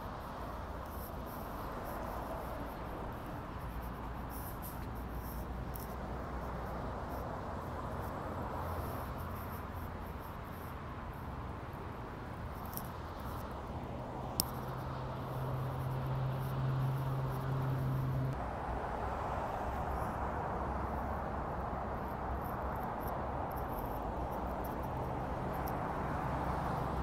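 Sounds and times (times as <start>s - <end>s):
faint high ticks: 12.6s - 13.6s, 14.4s - 18.3s, 22.4s - 25.9s.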